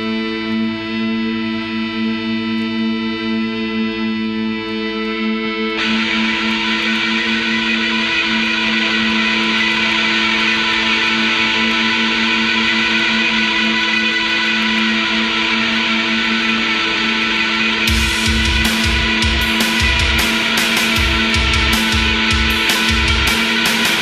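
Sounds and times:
distorted noise wash: 5.8 - 24.0
pulsing drone: 5.8 - 24.0.

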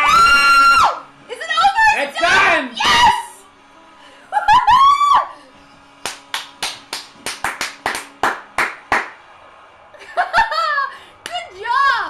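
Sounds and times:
hands clapping: 6.0 - 9.2, 11.2 - 11.4.

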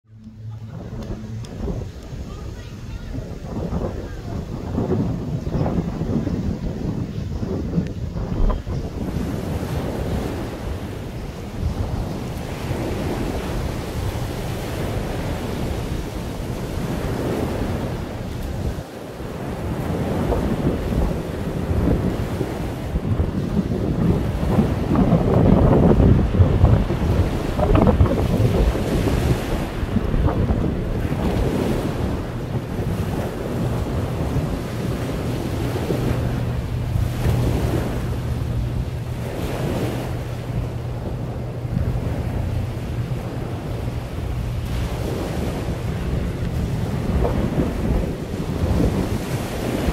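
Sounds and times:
ferry engines droning: 0.1 - 4.4
water washing: 0.1 - 49.9
wind blowing across microphone: 0.1 - 49.9.

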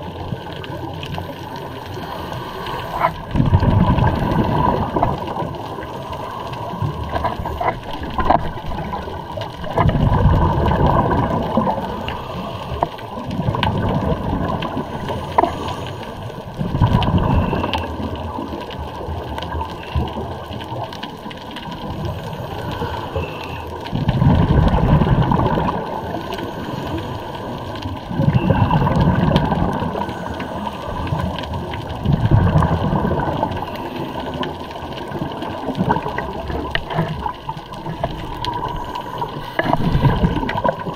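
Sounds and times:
underwater air bubbling: 0.0 - 40.9
regulator breathing noise: 1.2 - 3.3, 11.7 - 13.3, 14.9 - 16.4, 22.0 - 23.8, 26.1 - 27.8, 29.8 - 31.4, 38.6 - 40.4.

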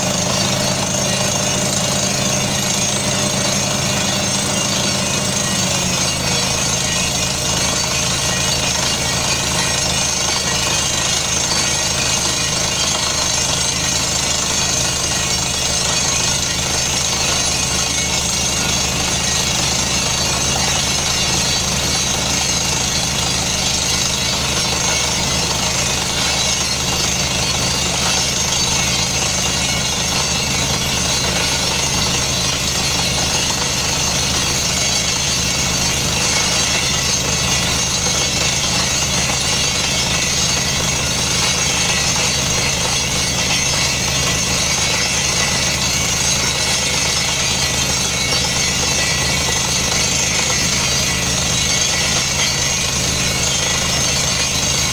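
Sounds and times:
drilling rig percussive hammering: 0.0 - 54.9
rig engine running: 0.0 - 54.9.

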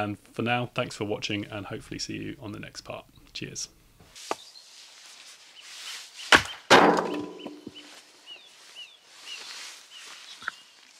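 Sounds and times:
small birds chirping: 1.3 - 10.9
axe chopping wood: 6.3 - 7.7.

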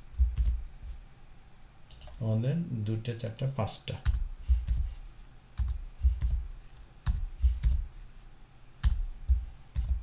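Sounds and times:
keyboard keystrokes: 8.8 - 10.0.

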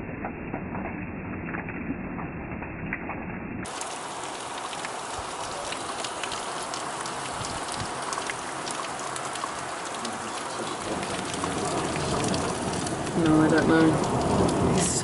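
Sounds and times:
raindrops ticking close by: 3.0 - 15.0
heavy rain falling: 3.6 - 15.0.

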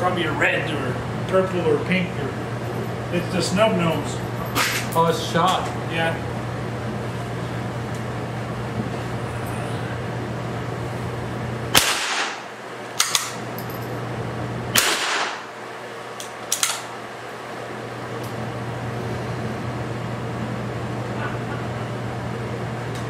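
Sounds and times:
rifle shots echoing indoors: 11.7 - 13.4, 14.7 - 15.6.

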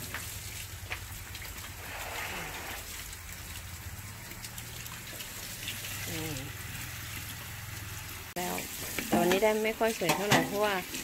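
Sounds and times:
water trickling: 0.0 - 11.0
hiss: 1.8 - 2.9.

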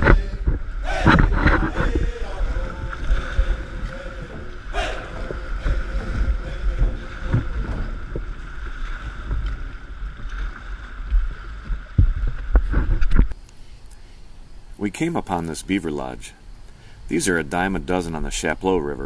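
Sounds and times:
whitewater rushing: 0.0 - 10.7
paddle strokes splashing: 0.0 - 13.0
wind buffeting microphone: 0.0 - 13.4.

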